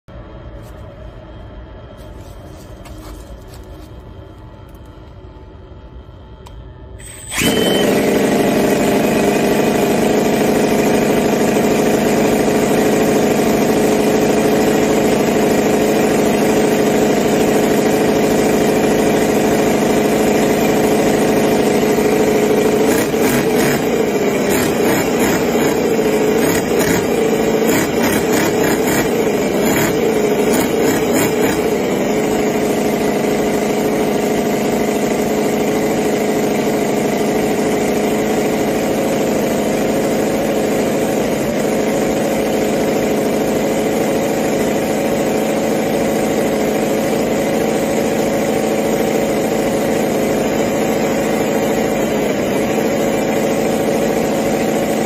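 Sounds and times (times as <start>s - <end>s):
model engine running: 7.0s - 55.0s.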